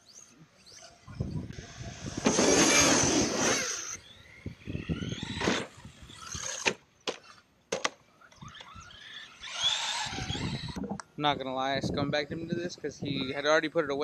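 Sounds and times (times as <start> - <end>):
electric toy car motor whining: 0.0 - 7.4, 8.2 - 10.8
toy car clacking on asphalt: 1.9 - 10.8.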